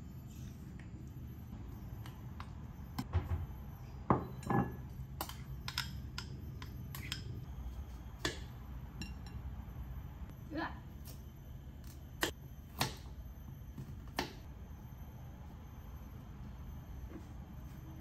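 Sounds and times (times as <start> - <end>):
cutlery scraping ceramic bowls: 4.3 - 7.4.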